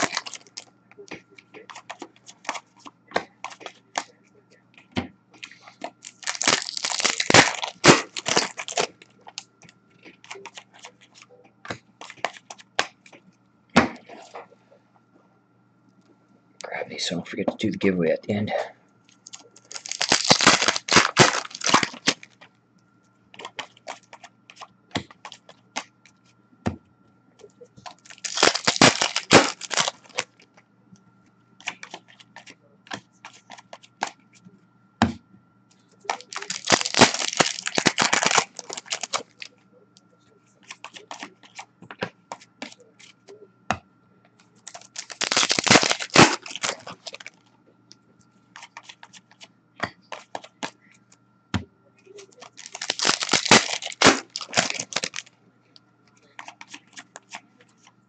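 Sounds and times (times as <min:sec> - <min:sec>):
cards being shuffled: 0:00.0 - 0:00.6, 0:01.6 - 0:04.1, 0:05.4 - 0:09.4, 0:19.3 - 0:22.5, 0:27.9 - 0:30.3, 0:36.1 - 0:39.5, 0:44.6 - 0:47.3, 0:52.4 - 0:55.3
foil packs tearing open: 0:00.0 - 0:00.6, 0:06.0 - 0:08.9, 0:19.3 - 0:22.3, 0:28.0 - 0:30.2, 0:36.1 - 0:39.5, 0:44.7 - 0:47.3, 0:52.4 - 0:55.3
faint steady hum: 0:00.0 - 0:58.0.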